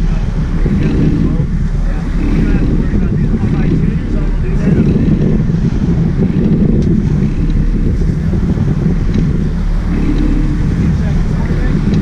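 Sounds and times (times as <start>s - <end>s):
boat engines rumbling: 0.0s - 12.0s
water churning: 0.0s - 12.0s
wind buffeting microphone: 0.0s - 12.0s.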